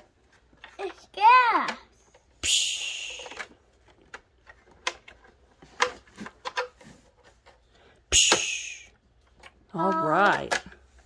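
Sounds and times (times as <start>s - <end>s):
toy cars clicking on plastic: 0.6s - 6.7s
short hissing burst: 8.1s - 8.9s.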